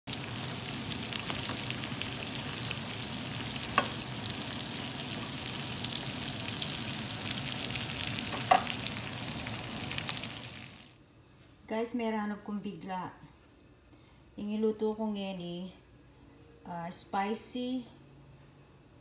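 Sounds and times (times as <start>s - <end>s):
shrimp sizzling in frying pan: 0.1s - 10.9s.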